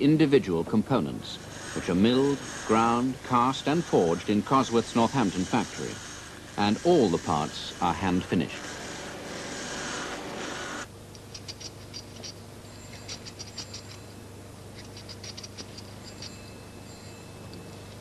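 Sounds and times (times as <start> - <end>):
rotary burr grinding metal: 1.0 - 18.0
small metal parts clicking: 11.1 - 16.5.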